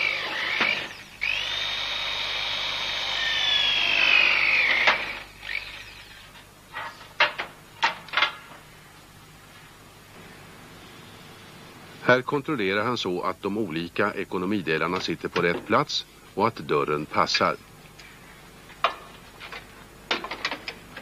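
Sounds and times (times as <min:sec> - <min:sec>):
electric drill whining through steel: 0:00.0 - 0:06.5
knocks and clatters: 0:18.8 - 0:21.0.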